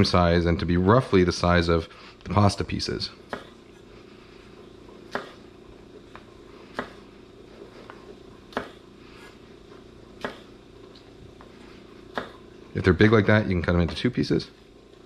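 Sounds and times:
knife chopping on wooden board: 0:03.3 - 0:03.6, 0:05.1 - 0:05.4, 0:06.1 - 0:07.0, 0:08.5 - 0:08.8, 0:10.2 - 0:10.6, 0:12.1 - 0:12.4.

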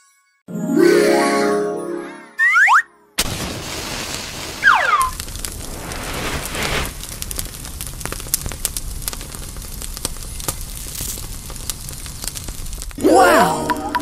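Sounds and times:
fire crackling and popping: 0:03.2 - 0:14.0.

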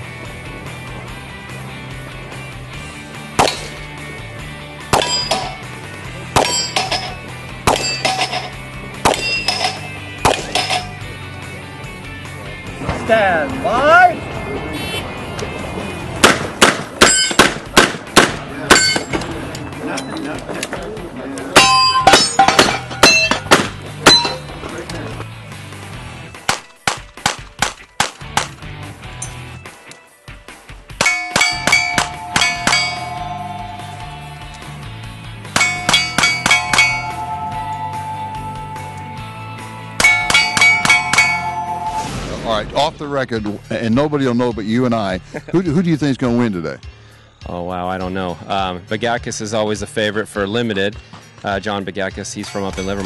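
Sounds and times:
revolver shots: 0:03.3 - 0:03.9
steel target clanging: 0:04.9 - 0:05.7, 0:06.4 - 0:11.0, 0:17.0 - 0:17.6, 0:18.7 - 0:19.2, 0:21.6 - 0:24.6, 0:31.0 - 0:34.6, 0:35.4 - 0:39.3, 0:39.9 - 0:42.1, 0:52.4 - 0:53.0.

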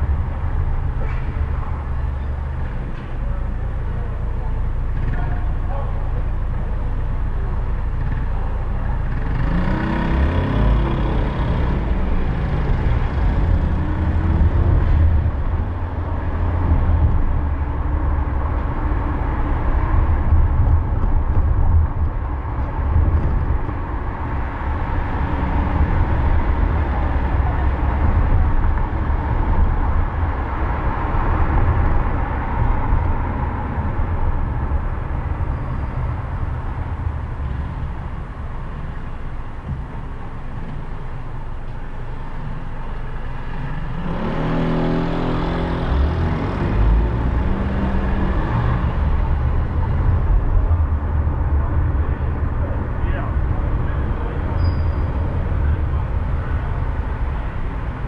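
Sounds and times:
engine and road rumble: 0:00.0 - 0:58.0
engine revving up: 0:09.2 - 0:14.5, 0:43.9 - 0:49.2.

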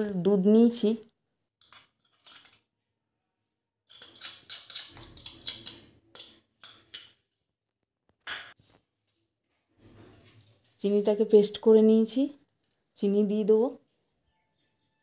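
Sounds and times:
spoon scraping and tapping bowls: 0:01.6 - 0:02.6, 0:03.9 - 0:07.3.

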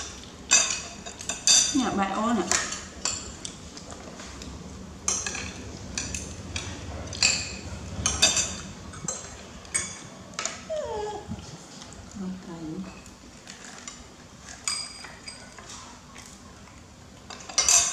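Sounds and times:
metal spoons clinking on ceramic: 0:07.1 - 0:10.0, 0:14.6 - 0:15.7, 0:17.3 - 0:17.9.

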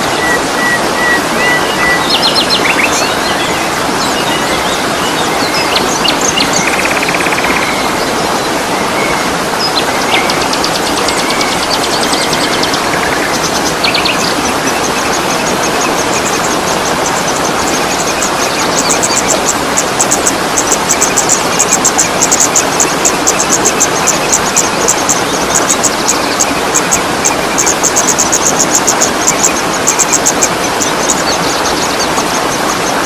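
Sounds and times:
songbirds chirping and trilling: 0:00.0 - 0:33.0
waterfall rushing: 0:00.0 - 0:33.0.

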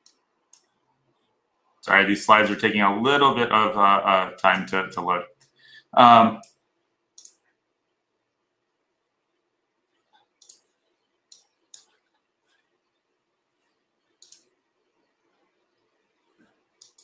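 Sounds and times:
computer mouse clicks: 0:00.0 - 0:00.8, 0:07.2 - 0:07.4, 0:10.1 - 0:10.7, 0:11.3 - 0:12.6, 0:14.1 - 0:14.6, 0:16.8 - 0:17.0.

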